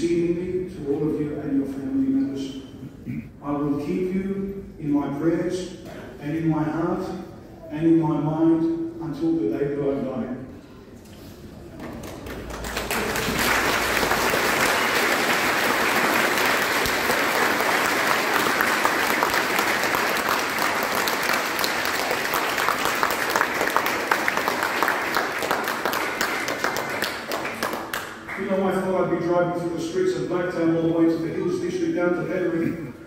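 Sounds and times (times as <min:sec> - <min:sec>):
crowd applauding: 0:11.8 - 0:28.6.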